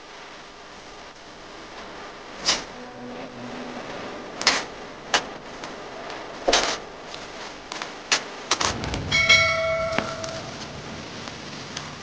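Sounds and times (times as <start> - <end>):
bubble wrap crackling: 1.6 - 9.2.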